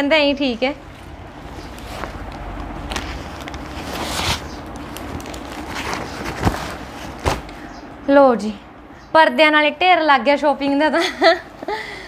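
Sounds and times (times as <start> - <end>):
plastic bag rustling and crinkling: 1.4 - 7.6.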